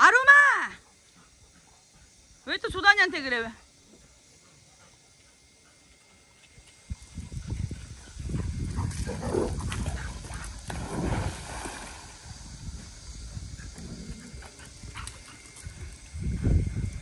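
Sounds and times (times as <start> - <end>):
dogs growling in play: 8.2 - 10.5, 13.6 - 15.4.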